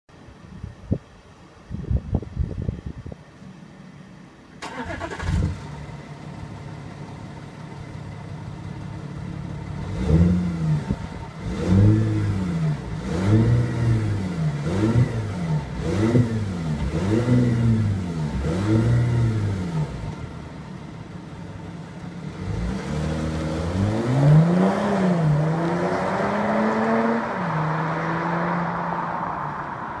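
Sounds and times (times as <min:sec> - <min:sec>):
diesel car engine starting: 0:02.3 - 0:30.0
car engine idling: 0:03.0 - 0:11.5, 0:14.2 - 0:22.5
car engine revving: 0:04.6 - 0:06.7, 0:08.3 - 0:21.3, 0:22.0 - 0:30.0.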